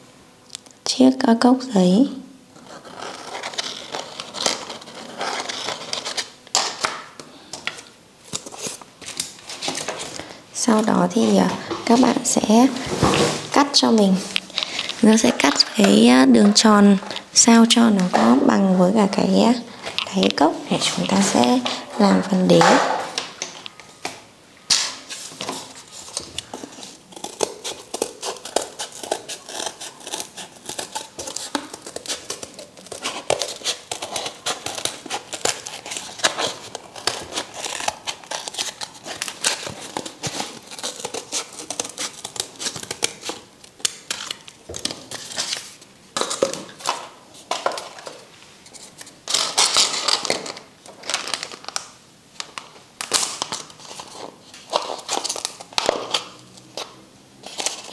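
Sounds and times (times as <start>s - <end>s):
scissors snipping cardboard: 25.4s - 44.4s.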